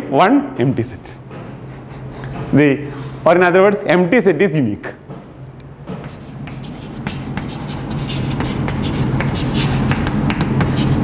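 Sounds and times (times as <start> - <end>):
chalk scratching on blackboard: 6.0 - 11.0.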